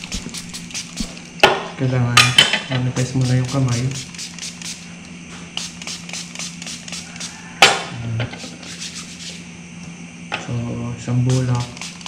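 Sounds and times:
background music with ticking beat: 0.0s - 1.2s, 3.2s - 4.8s
spray bottle hiss: 0.0s - 1.3s, 3.0s - 9.4s, 11.3s - 12.0s.

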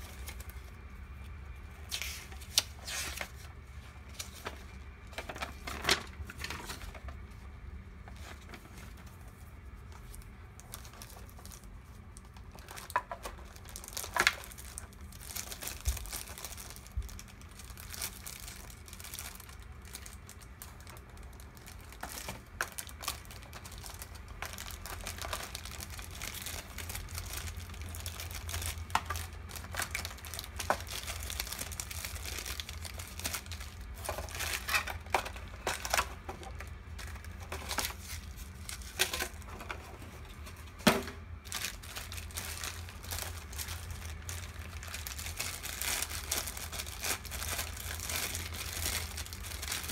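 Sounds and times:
plastic bags crinkling: 0.0s - 49.9s.

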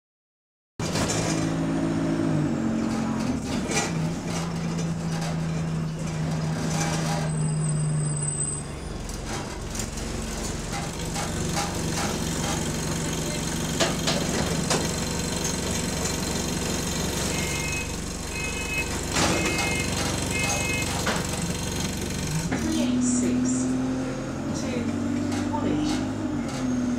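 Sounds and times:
bus engine droning: 0.8s - 26.9s
short high beeps: 17.3s - 20.9s.

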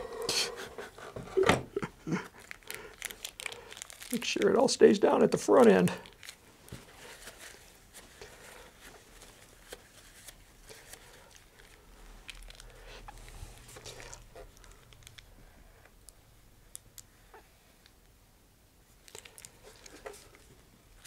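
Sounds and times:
plastic bag crinkling: 2.0s - 15.4s, 19.0s - 21.0s.

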